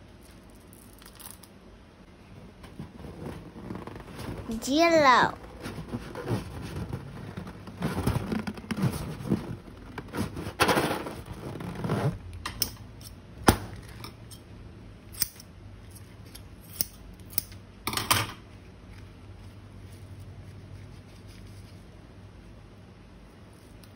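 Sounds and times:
crinkly handling noise: 0:18.5 - 0:22.1.

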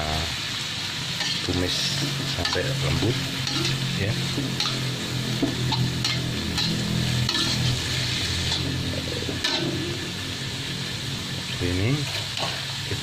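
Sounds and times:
cabbage sizzling in hot oil: 0:00.0 - 0:13.0
metal spatula scraping a wok: 0:01.1 - 0:10.2.

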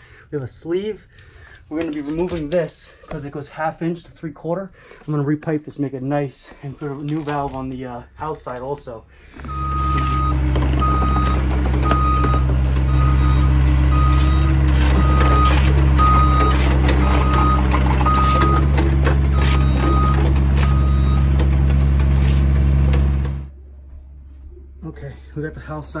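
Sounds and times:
travel alarm beeping: 0:09.5 - 0:21.3
excavator diesel engine running: 0:09.5 - 0:23.5.

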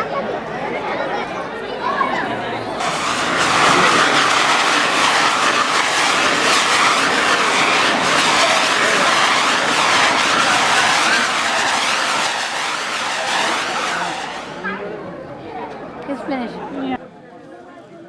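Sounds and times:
fireworks crackling and hissing: 0:02.8 - 0:14.9.

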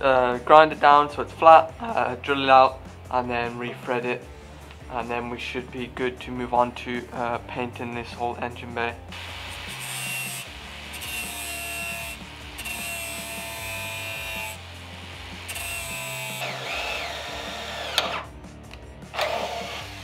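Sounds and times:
angle grinder grinding metal: 0:09.1 - 0:18.4, 0:19.1 - 0:20.0.

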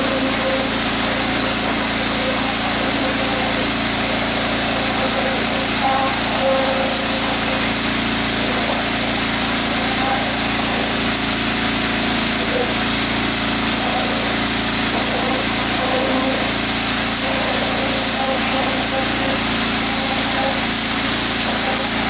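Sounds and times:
small engine running: 0:00.0 - 0:22.0
water jet spraying into soil: 0:00.0 - 0:22.0.

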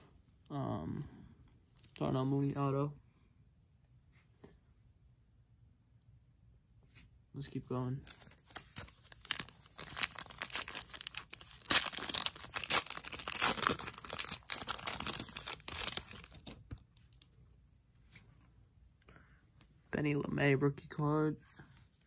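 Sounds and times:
foil wrapper tearing and crinkling: 0:08.1 - 0:17.2.

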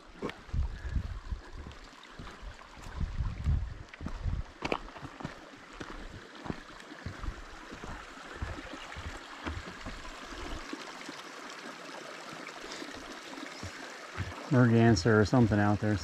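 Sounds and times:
flowing stream: 0:00.0 - 0:16.0
footsteps on wooden boardwalk: 0:00.2 - 0:10.6, 0:13.6 - 0:14.4.

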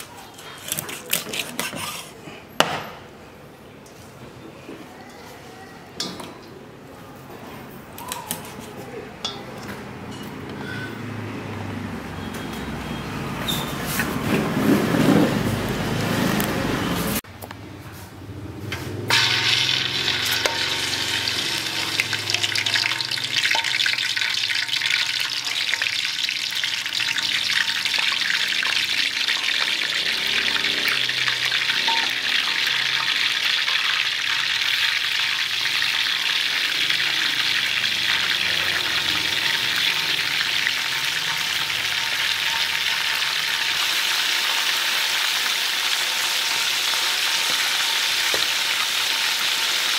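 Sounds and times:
quail sizzling in hot oil: 0:19.1 - 0:49.9.

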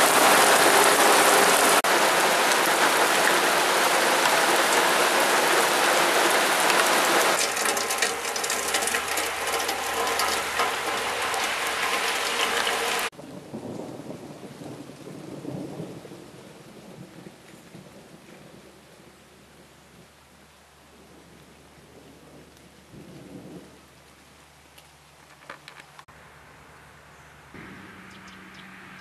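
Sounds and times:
thunder rumbling: 0:00.0 - 0:19.2
heavy rain splashing on path: 0:00.0 - 0:26.1.

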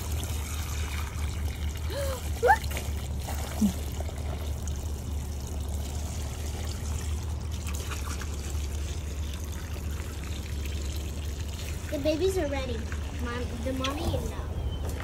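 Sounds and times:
water trickling into a bowl: 0:00.0 - 0:14.3.

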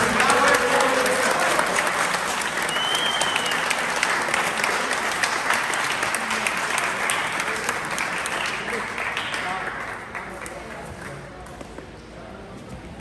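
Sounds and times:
spectators applauding: 0:00.0 - 0:11.2
high whistle: 0:02.7 - 0:03.8.

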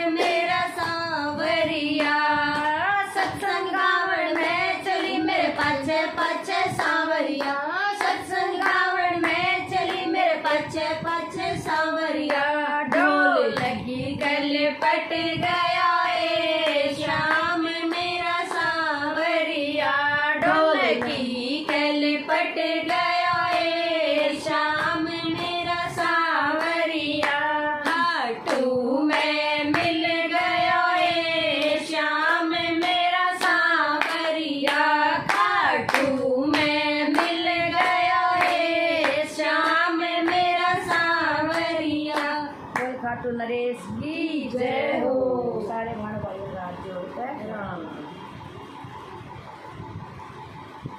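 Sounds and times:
women singing together: 0:00.0 - 0:45.9
hands clapping in time: 0:31.6 - 0:43.0.

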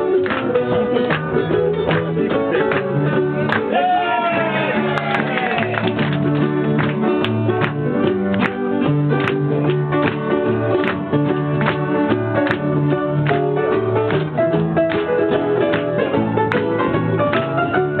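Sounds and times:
bass line: 0:00.0 - 0:18.0
mandolin and guitars strumming: 0:00.0 - 0:18.0.

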